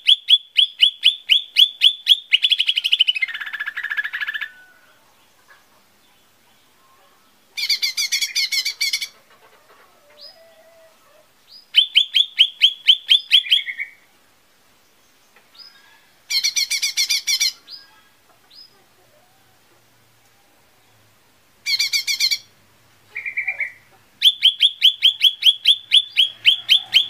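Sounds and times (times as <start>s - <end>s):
bird singing chattering phrases: 0.0s - 4.5s, 5.2s - 9.3s, 15.2s - 19.0s, 21.6s - 22.5s, 23.1s - 27.0s
soft short bird calls: 23.1s - 27.0s.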